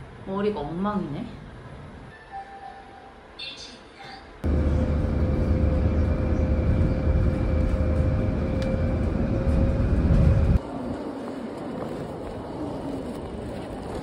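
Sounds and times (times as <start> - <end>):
faint constant hum: 3.0 - 10.6
vehicle interior low rumble: 4.4 - 10.6.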